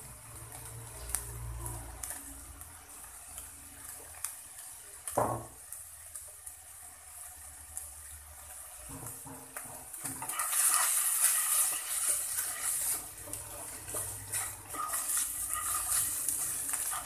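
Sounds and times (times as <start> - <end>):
meat sizzling: 0.0 - 17.0
wooden spatula scraping wok: 8.6 - 17.0.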